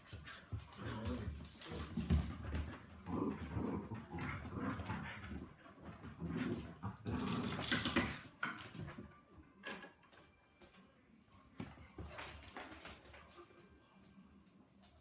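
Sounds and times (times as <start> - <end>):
dogs scuffling: 0.0 - 9.1
dogs growling playfully: 0.5 - 8.2.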